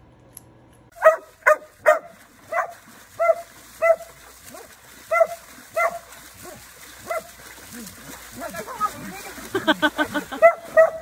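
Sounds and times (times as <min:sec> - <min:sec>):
dog barking: 0:01.0 - 0:07.4, 0:10.1 - 0:11.0.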